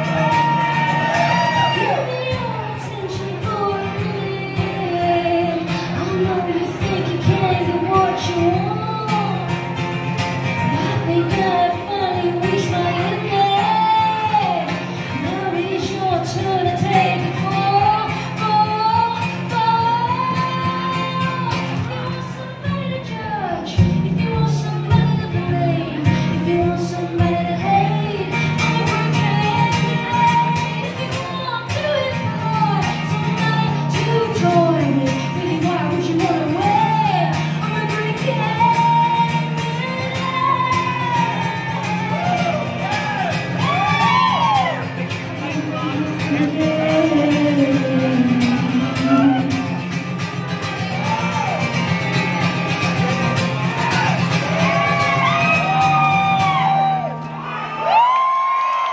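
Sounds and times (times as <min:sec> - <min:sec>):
woman singing: 0:00.0 - 0:09.7, 0:10.6 - 0:41.8, 0:45.4 - 0:50.2
acoustic guitar strumming: 0:00.0 - 0:57.4.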